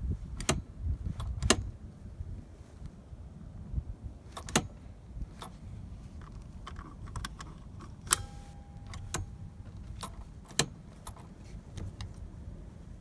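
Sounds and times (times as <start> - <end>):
seat belt latch clicking: 0.3 - 1.7, 4.3 - 4.8, 6.2 - 12.2
metallic ring: 8.1 - 10.2.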